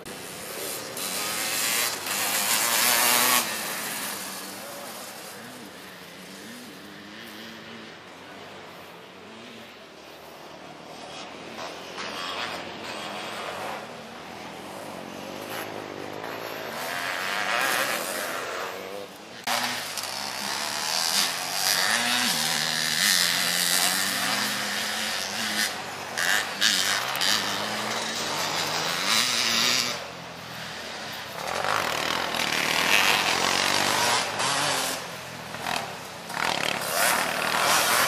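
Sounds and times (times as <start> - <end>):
three-wheeler engines revving: 0.0 - 38.0.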